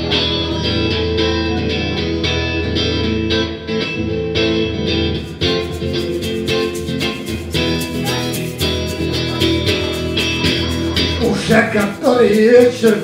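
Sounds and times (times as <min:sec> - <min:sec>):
electric guitar strumming chords: 0:00.0 - 0:13.0.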